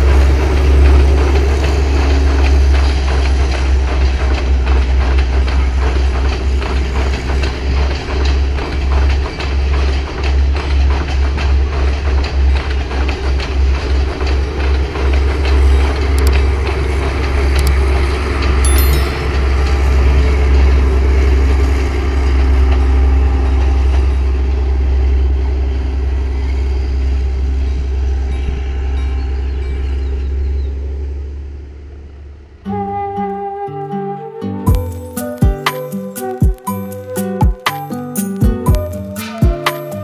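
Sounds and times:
train wheels clattering over rail joints: 0.0s - 18.6s
train rumble and engine drone: 0.0s - 33.0s.

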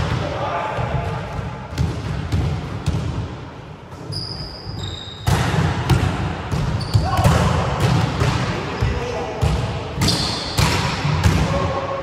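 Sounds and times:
volleyballs hit and bouncing: 0.0s - 12.0s
high-pitched squeak: 4.1s - 5.2s.

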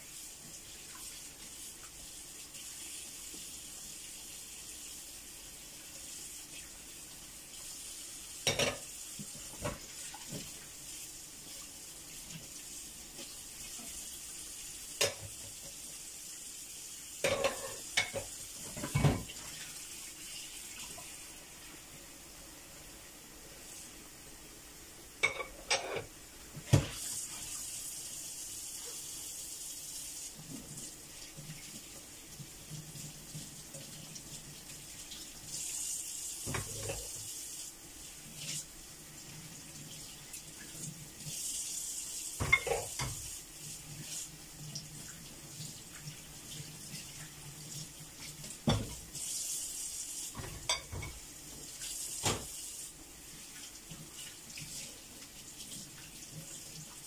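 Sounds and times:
dishes and cutlery clattering: 8.5s - 8.8s, 17.2s - 19.3s, 25.2s - 26.1s, 50.4s - 51.2s
tap running into sink: 17.2s - 19.4s, 26.6s - 27.0s, 36.4s - 37.1s, 42.4s - 43.3s, 48.6s - 49.0s, 50.3s - 51.2s, 52.2s - 52.5s.

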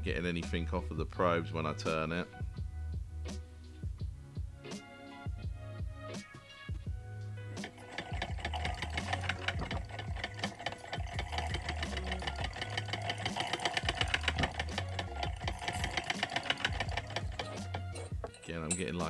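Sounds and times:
gear train whirring: 7.6s - 18.9s
mechanism clattering: 7.6s - 19.0s.

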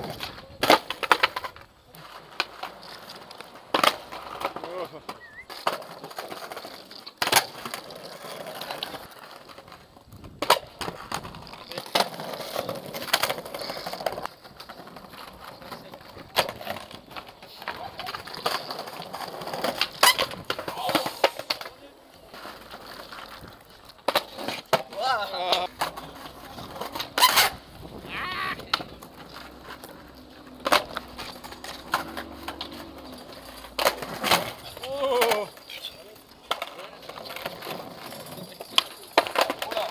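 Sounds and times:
skateboard wheels rolling on paving: 0.0s - 39.9s
skateboard wooden clacks: 0.0s - 39.9s
high-pitched call: 5.2s - 5.6s.

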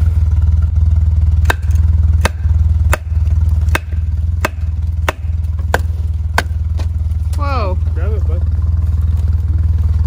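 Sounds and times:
loud low rumble: 0.0s - 10.0s
axe chopping wood: 1.4s - 7.4s.

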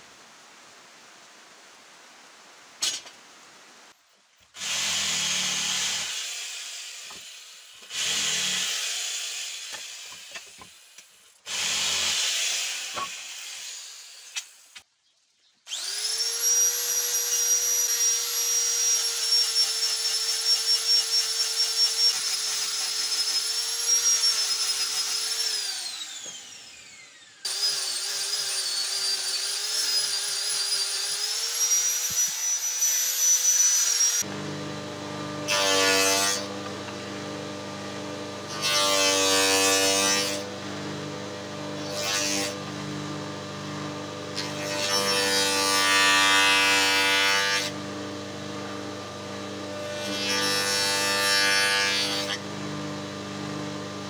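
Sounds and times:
angle grinder sanding wood: 27.5s - 54.0s.

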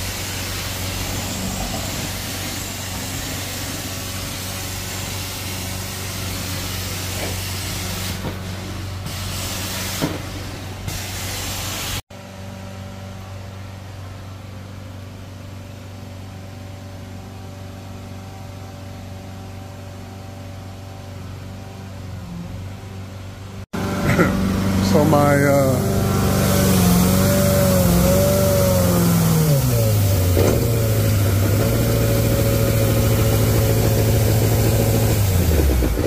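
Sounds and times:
loud hiss: 0.0s - 8.3s, 9.0s - 12.0s, 24.2s - 36.0s
engine running: 0.0s - 10.9s, 12.2s - 36.0s.

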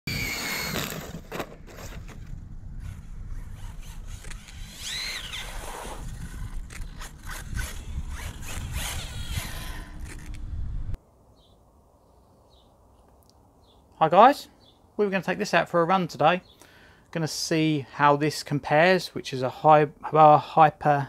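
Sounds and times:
electric motor whining: 0.1s - 2.2s, 2.8s - 11.0s
wind rumble on microphone: 1.6s - 11.0s.

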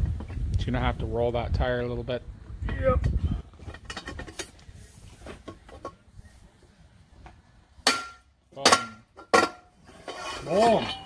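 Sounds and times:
metal-on-metal strikes: 7.8s - 9.7s.

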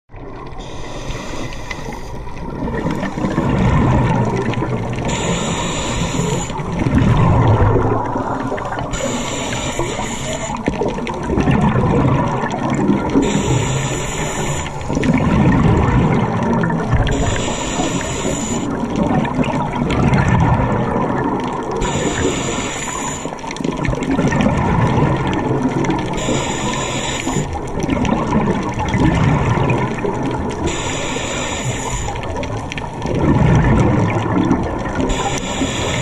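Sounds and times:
exhaled air bubbling: 0.1s - 36.0s
regulator hiss on inhalation: 0.6s - 2.2s, 5.1s - 6.6s, 8.9s - 10.6s, 13.2s - 14.8s, 17.1s - 18.8s, 21.8s - 23.4s, 26.2s - 27.5s, 30.6s - 32.2s, 35.1s - 36.0s.

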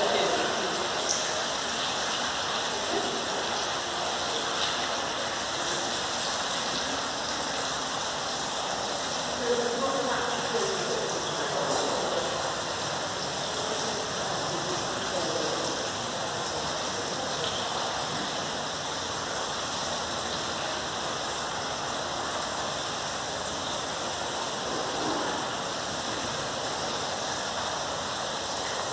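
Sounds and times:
faint voices murmuring: 0.0s - 1.6s, 2.4s - 7.6s
hiss-like rushing noise: 0.0s - 28.9s.

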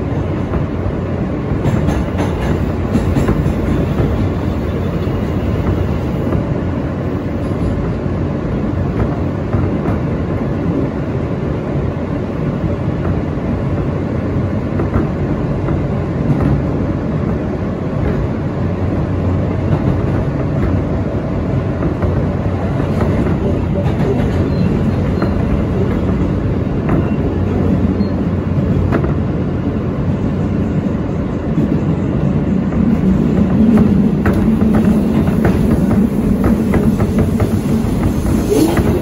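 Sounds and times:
rail joint clicks: 0.0s - 11.0s, 11.6s - 39.0s
subway train wheels rumbling on rail: 0.0s - 39.0s.

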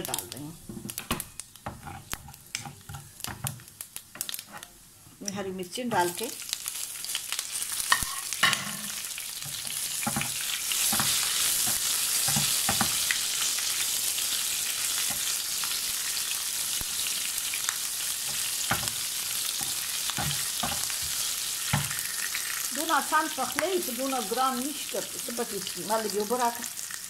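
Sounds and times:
chillies sizzling in hot oil: 0.0s - 27.0s
wooden spatula knocking on pan: 12.3s - 13.0s, 18.7s - 19.0s, 19.6s - 21.9s.

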